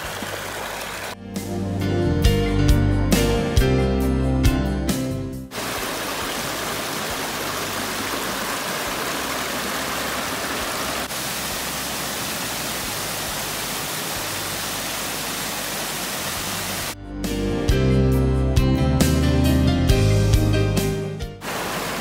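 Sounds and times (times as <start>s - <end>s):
brook flowing over rocks: 0.0s - 1.2s, 5.5s - 17.0s, 21.4s - 22.0s
water pouring over rock ledge: 0.0s - 1.2s, 5.5s - 17.0s.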